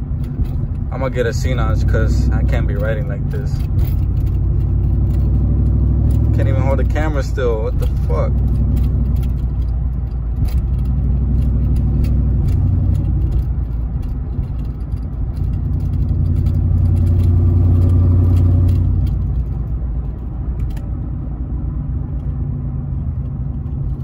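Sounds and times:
engine and road drone: 0.0 - 24.0
sharp knocks and rattles: 2.4 - 21.0.

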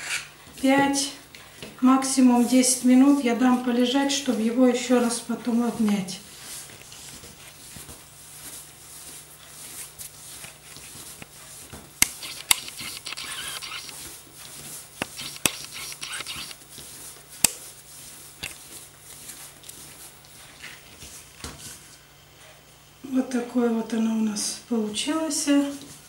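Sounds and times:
hands kneading dough: 0.0 - 12.0, 16.6 - 22.0.

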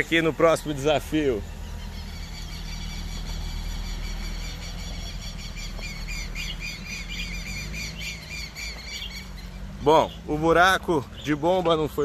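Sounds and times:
birds chirping: 0.0 - 12.0
pickup engine running at low revs: 0.0 - 12.0.

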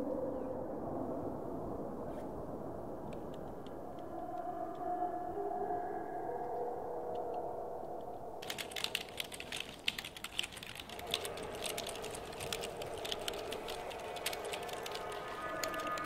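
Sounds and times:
fast typing on a keyboard: 8.4 - 16.0.

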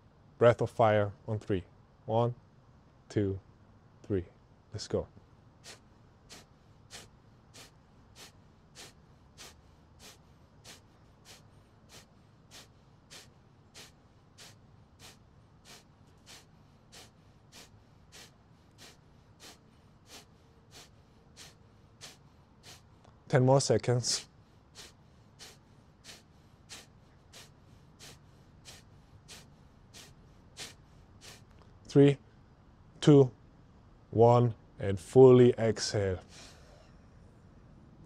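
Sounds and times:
forceful exhales through nose: 5.6 - 23.0, 24.2 - 31.5.

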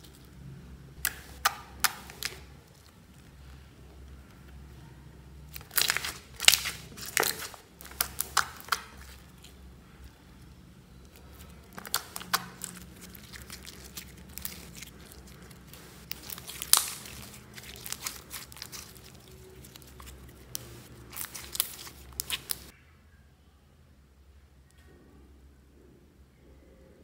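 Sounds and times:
slime squeezed with sticky pops: 1.0 - 2.9, 5.5 - 9.6, 11.1 - 22.7.

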